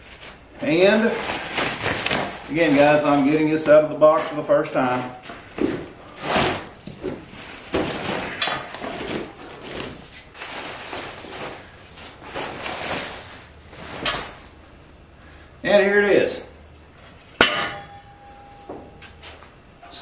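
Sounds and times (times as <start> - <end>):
plastic wrapping rustling: 0.0 - 15.0.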